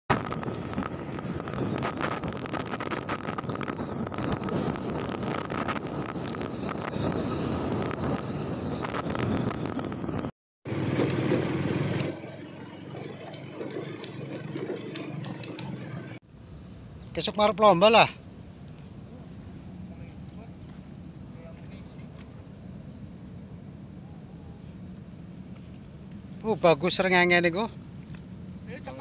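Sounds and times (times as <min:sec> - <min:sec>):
wind rushing on microphone: 0:00.1 - 0:12.2
motorcycle engine running: 0:10.7 - 0:16.2.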